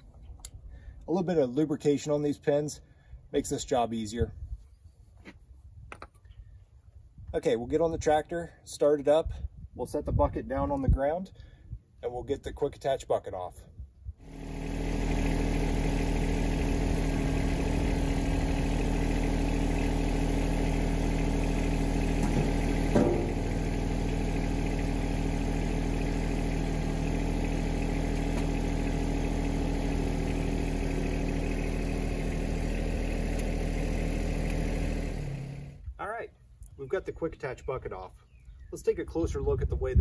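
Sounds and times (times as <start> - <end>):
tractor diesel engine running: 14.2 - 36.0
short clunk: 22.2 - 23.4.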